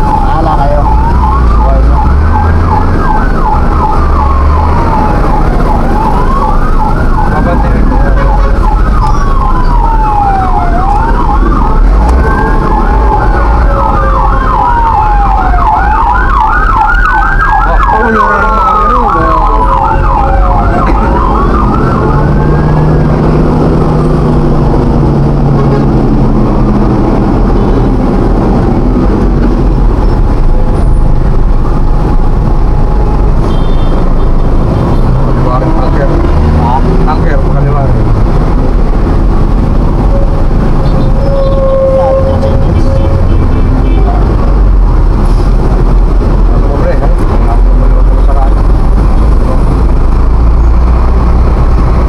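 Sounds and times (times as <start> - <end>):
emergency vehicle siren: 0.0 - 52.0
engine and road rumble: 0.0 - 52.0.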